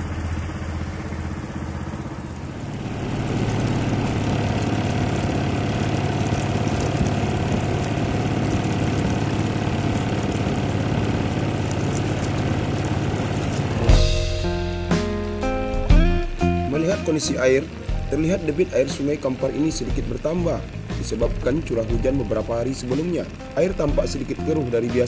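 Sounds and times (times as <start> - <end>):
small boat engine running: 0.0 - 25.0
water rushing along hull: 0.0 - 25.0.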